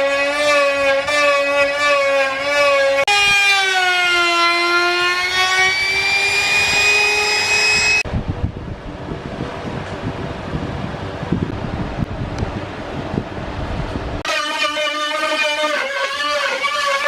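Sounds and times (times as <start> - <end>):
trim router whining: 0.0 - 8.1.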